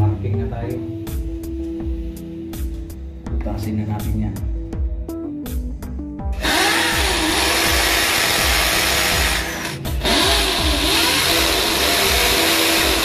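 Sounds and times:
electric drill boring into concrete: 0:06.4 - 0:13.0.

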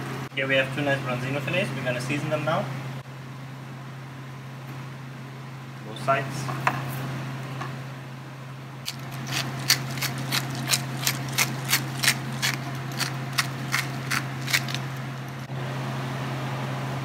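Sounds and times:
pepper mill ratcheting clicks: 0:08.9 - 0:15.0.

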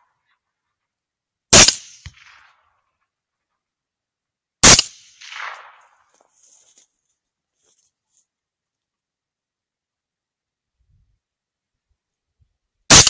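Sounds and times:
rifle shots with echo: 0:01.5 - 0:02.6, 0:04.6 - 0:06.1.

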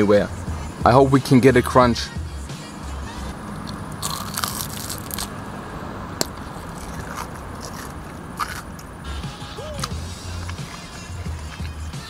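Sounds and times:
fried pastry crunching: 0:03.6 - 0:05.4, 0:06.2 - 0:08.9.

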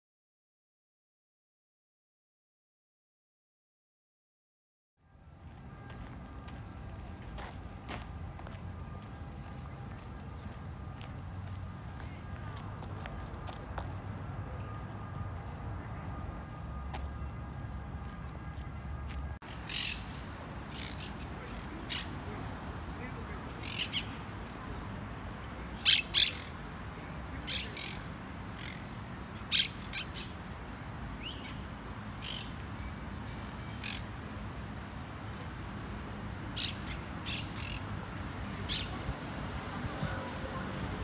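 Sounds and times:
birds calling: 0:19.5 - 0:22.4, 0:25.7 - 0:26.6, 0:36.2 - 0:39.0.

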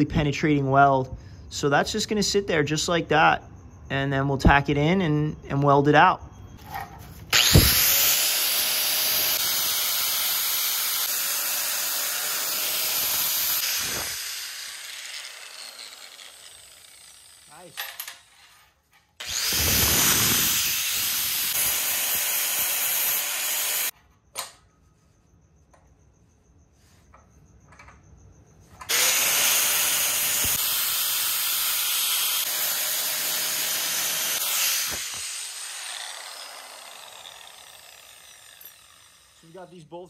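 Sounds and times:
grinder whining: 0:06.6 - 0:24.0, 0:28.8 - 0:40.0.

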